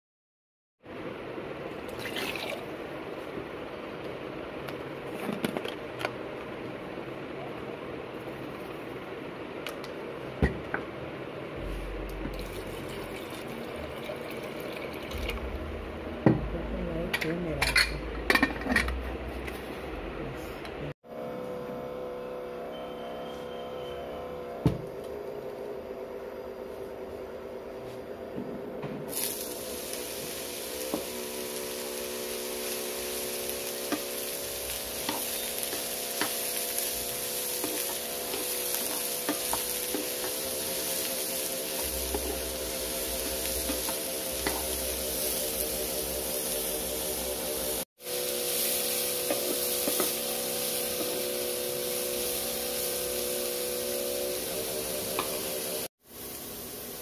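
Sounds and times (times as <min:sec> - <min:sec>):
cooktop steady hum: 0:00.8 - 0:57.0
chickpeas sizzling in hot oil: 0:29.1 - 0:57.0.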